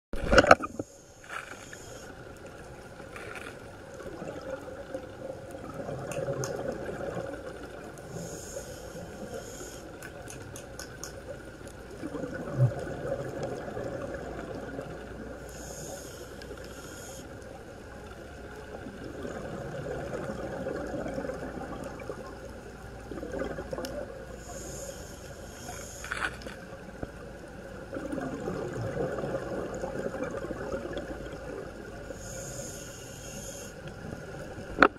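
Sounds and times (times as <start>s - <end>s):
exhaled bubbles rumbling: 3.8s - 8.3s, 11.8s - 15.5s, 18.0s - 24.4s, 27.1s - 32.2s
diver breathing through regulator: 8.1s - 10.0s, 15.4s - 17.3s, 24.3s - 26.4s, 32.1s - 33.8s.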